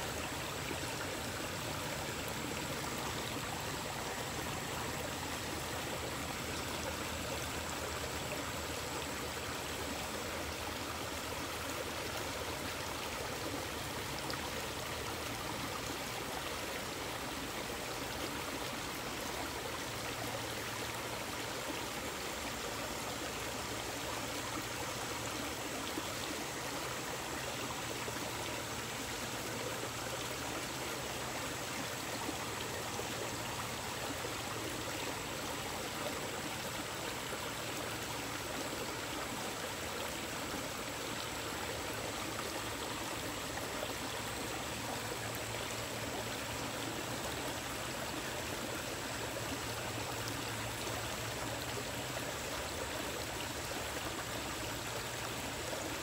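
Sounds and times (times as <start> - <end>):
stream flowing over stones: 0.0 - 56.0.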